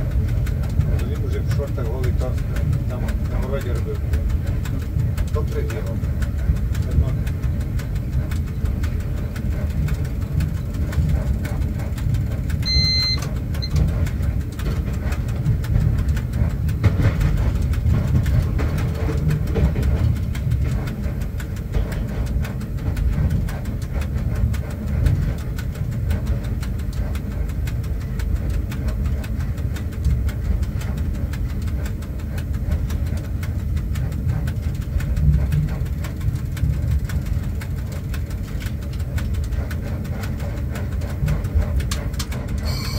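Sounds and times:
locomotive cab rumble: 0.0s - 42.9s
short high electronic beep: 12.7s - 13.2s, 42.6s - 42.9s.

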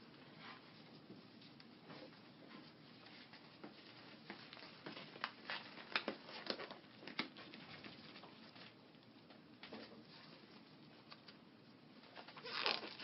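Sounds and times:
casting tape crackling: 0.1s - 13.0s
casting tape rustling: 3.0s - 13.0s.

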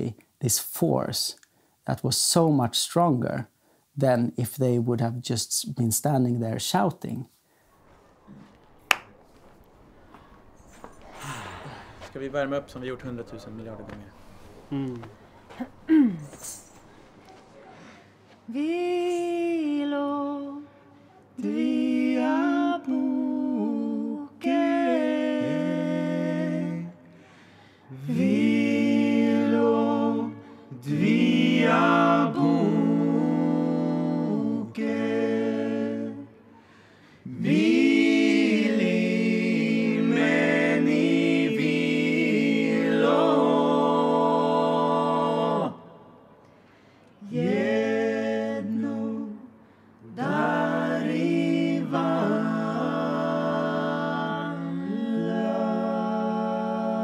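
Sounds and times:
singers breathing: 11.0s - 12.2s, 16.8s - 18.3s, 27.0s - 28.0s, 36.5s - 37.3s, 46.4s - 47.2s, 49.5s - 50.0s
group singing held notes: 16.8s - 57.0s.

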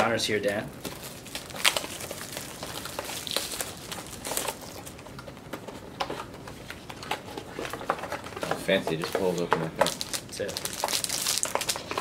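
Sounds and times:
plastic shrink-wrap crinkling: 0.2s - 5.4s, 7.0s - 12.0s
cardboard rustling: 0.4s - 12.0s.

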